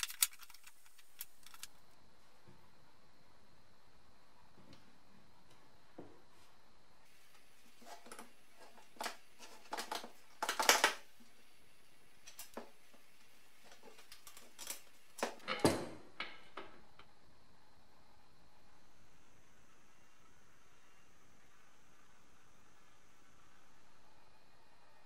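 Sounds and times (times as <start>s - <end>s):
small metal clicks and knocks: 0.0s - 1.8s, 13.7s - 16.8s.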